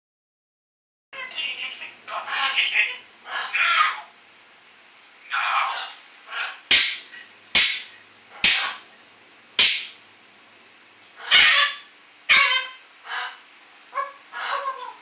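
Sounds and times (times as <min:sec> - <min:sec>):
parrot squawking: 0:01.2 - 0:04.2, 0:05.2 - 0:07.0, 0:07.6 - 0:08.9, 0:11.2 - 0:15.0.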